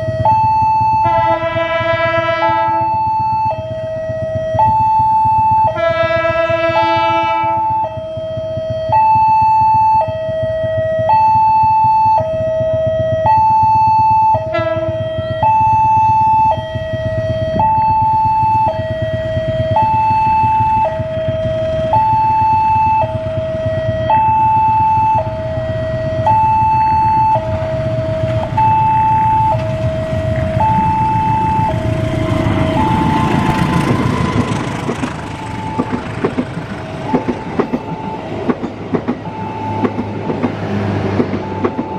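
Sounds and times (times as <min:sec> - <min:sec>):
diesel train rumble: 0:00.0 - 0:41.9
two-tone crossing alarm: 0:00.0 - 0:41.9
train wheels clattering: 0:31.7 - 0:41.9.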